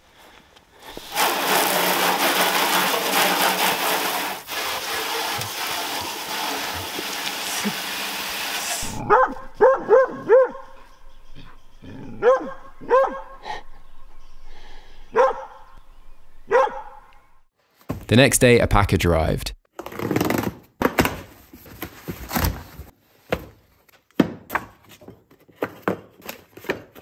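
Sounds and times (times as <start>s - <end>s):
dog barking: 9.0s - 10.9s, 12.2s - 13.4s, 15.1s - 15.7s, 16.5s - 17.0s.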